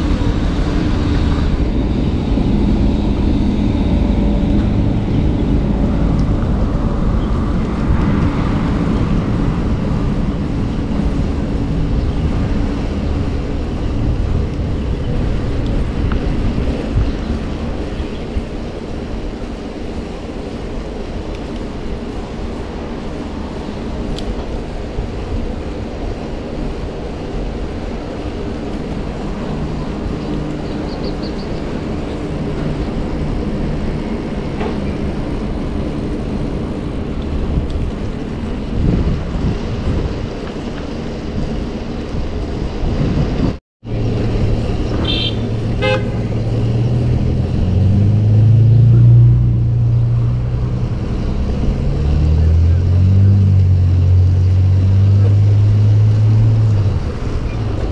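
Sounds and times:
car traffic: 0:00.0 - 0:57.9
wind and road noise: 0:00.0 - 0:57.9
passing car engine hum: 0:43.9 - 0:57.9.

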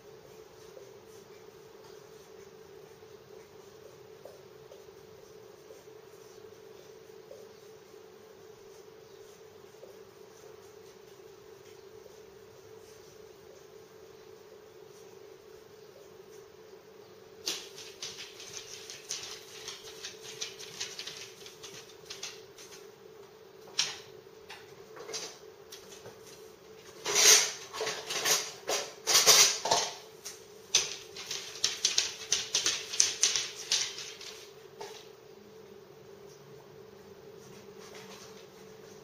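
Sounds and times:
appliance hum: 0:00.0 - 0:39.0
dog claws clicking on hard floor: 0:17.4 - 0:22.9, 0:23.7 - 0:24.0, 0:27.1 - 0:35.0.

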